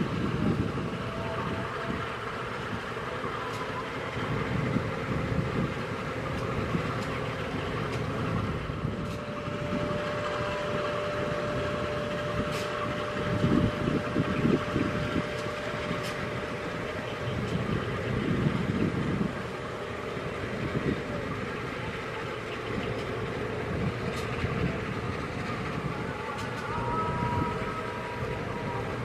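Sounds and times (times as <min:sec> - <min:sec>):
crane diesel machinery running: 0:00.0 - 0:29.0
thin steady whine: 0:00.0 - 0:29.0.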